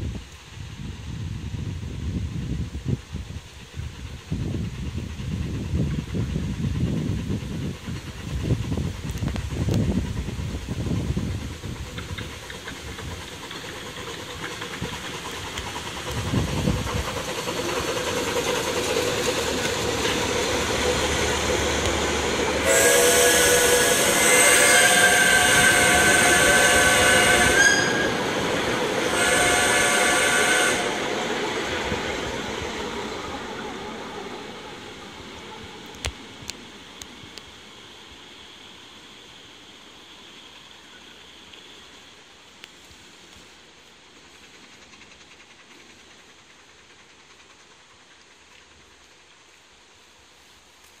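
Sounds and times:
steam locomotive running past: 0:00.0 - 0:51.0
steam whistle blasts: 0:20.8 - 0:31.4.

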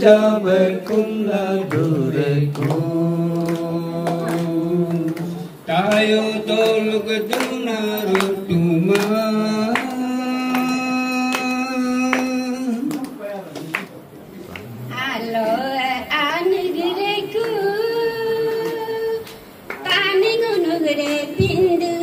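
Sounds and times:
man singing hymn: 0:00.0 - 0:13.0.

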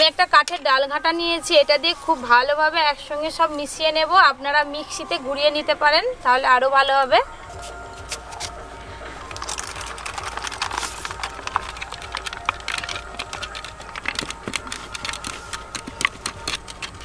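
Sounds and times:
wooden churner knocking metal pot: 0:09.4 - 0:17.0.

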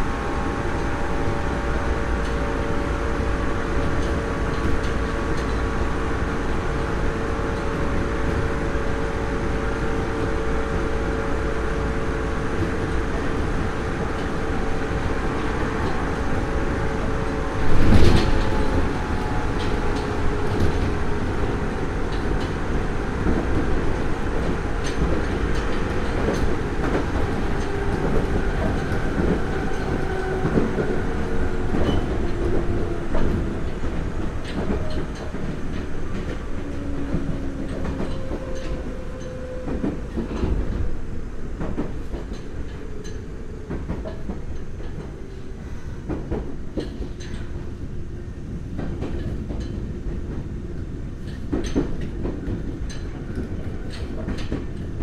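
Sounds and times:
train rolling noise: 0:00.0 - 0:55.0
wheels clicking over rail joints: 0:12.6 - 0:45.5, 0:46.1 - 0:47.8, 0:48.7 - 0:55.0.

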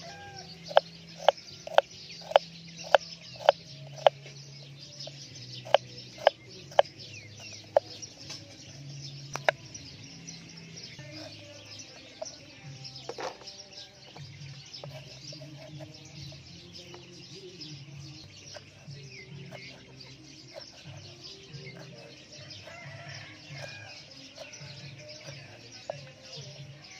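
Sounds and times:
chickens clucking: 0:00.0 - 0:04.4, 0:18.3 - 0:26.3
birds chirping: 0:00.0 - 0:26.9
knife chopping on wooden board: 0:00.7 - 0:04.1.

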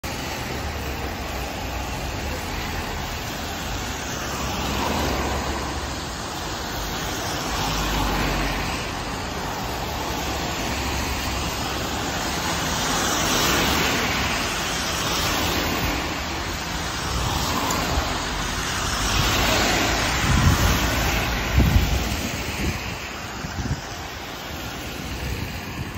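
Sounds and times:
tyres hissing on wet road: 0:00.0 - 0:25.9
wind buffeting microphone: 0:16.9 - 0:25.9.

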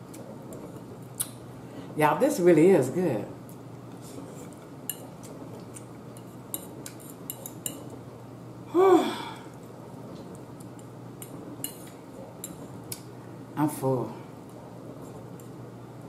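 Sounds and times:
person humming: 0:08.7 - 0:09.5.

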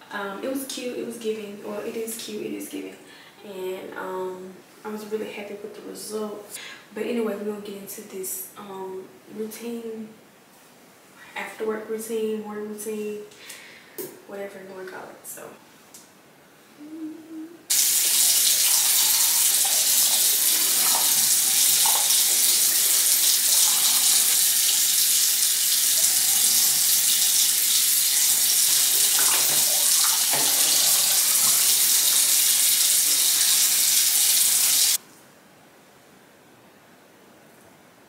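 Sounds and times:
sink tap running: 0:17.7 - 0:35.0.

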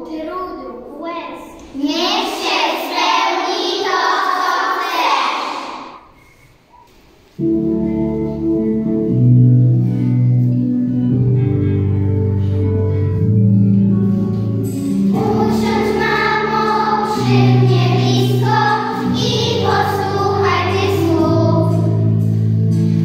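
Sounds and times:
children reciting in chorus: 0:01.6 - 0:06.2, 0:15.1 - 0:22.3
recorded music with bass line: 0:07.4 - 0:23.0.

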